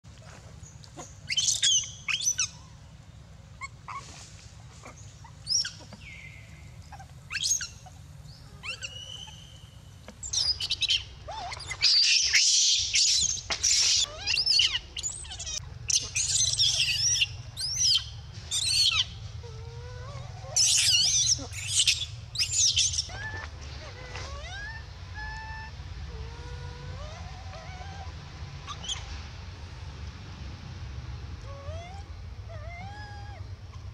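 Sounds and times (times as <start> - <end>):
baby monkey screaming: 1.0 - 2.7, 4.8 - 6.1, 6.9 - 8.0, 8.6 - 29.1, 31.4 - 33.9.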